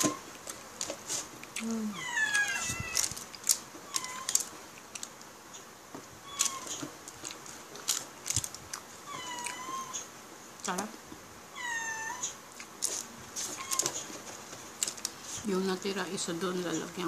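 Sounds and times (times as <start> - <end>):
cats meowing: 1.6 - 3.2, 3.8 - 4.5, 6.2 - 6.9, 9.0 - 10.1, 11.5 - 12.4, 13.4 - 14.2.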